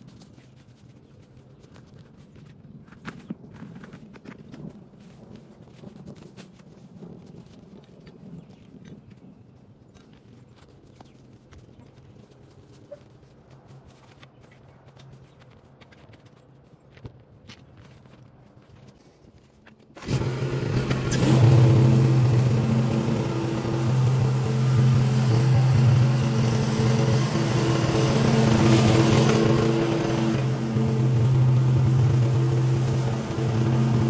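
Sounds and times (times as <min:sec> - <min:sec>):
small gasoline engine running: 0:20.0 - 0:34.0.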